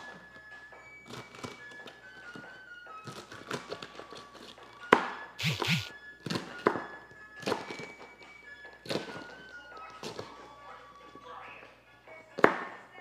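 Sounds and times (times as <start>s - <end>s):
soft background music: 0.0s - 13.0s.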